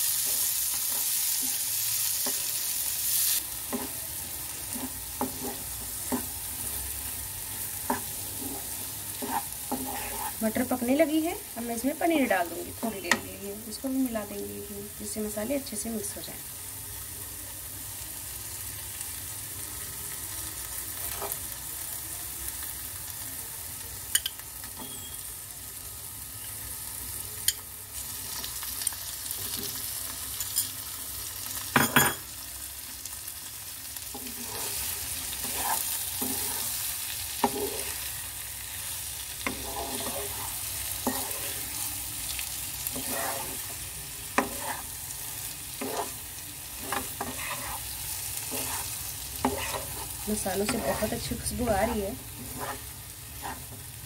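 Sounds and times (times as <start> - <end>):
food sizzling in a frying pan: 0.0 - 54.0
wooden spatula scraping pan: 4.7 - 6.3, 7.8 - 10.6, 34.1 - 36.8, 37.4 - 38.0, 39.4 - 41.8, 42.9 - 43.8, 44.4 - 44.9, 45.8 - 46.2, 46.8 - 53.8.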